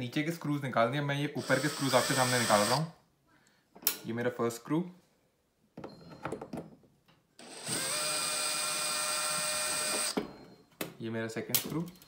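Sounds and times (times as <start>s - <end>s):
drill motor whine: 1.4s - 2.9s, 7.4s - 10.2s.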